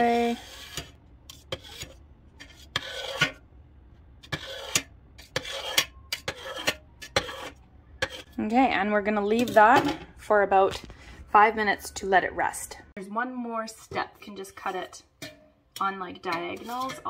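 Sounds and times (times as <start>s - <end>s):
knife blade scraping a pot: 0.0s - 3.4s, 4.2s - 8.4s, 9.2s - 10.1s, 13.8s - 17.0s.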